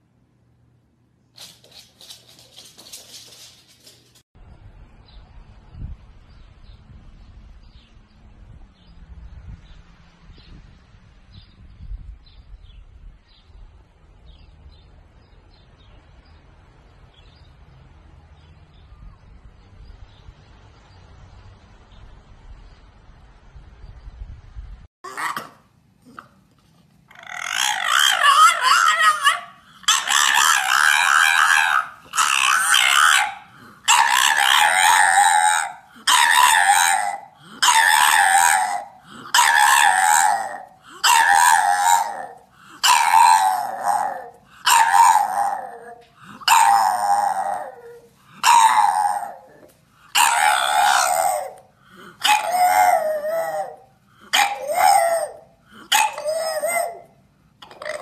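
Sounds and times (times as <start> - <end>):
dog howling: 27.1 - 58.0.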